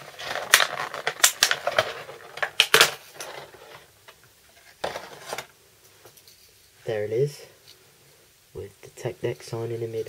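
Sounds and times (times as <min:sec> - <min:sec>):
packaging scrapes and rattles: 0:00.0 - 0:03.9, 0:04.6 - 0:05.5.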